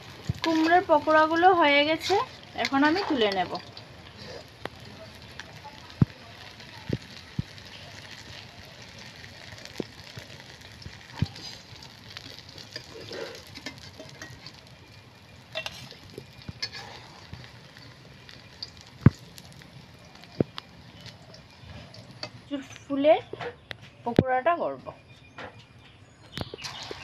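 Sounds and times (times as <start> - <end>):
oil sizzling in a pan: 0.0 - 22.6, 26.4 - 27.0
metal spoon clinking against pan: 12.6 - 14.6, 15.5 - 18.9.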